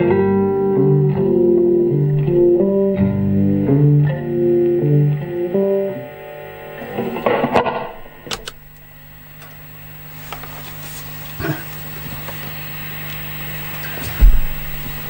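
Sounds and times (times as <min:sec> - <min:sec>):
electric guitar chord: 0:00.0 - 0:15.0
guitar amplifier hum: 0:00.0 - 0:15.0
guitar thump: 0:06.9 - 0:08.8, 0:14.0 - 0:15.0
guitar handling clicks: 0:07.0 - 0:09.6.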